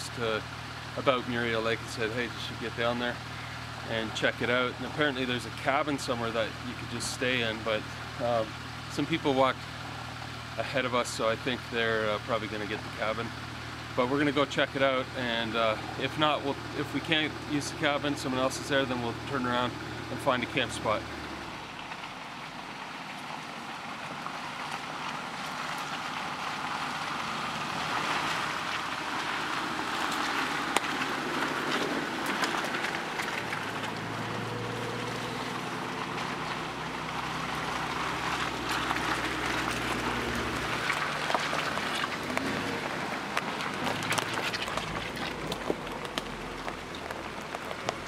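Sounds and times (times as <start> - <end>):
engines running at low speed: 0.0 - 48.0
low engine hum: 0.0 - 48.0
crackles: 21.6 - 48.0
tyres rolling over leaves and twigs: 23.1 - 48.0.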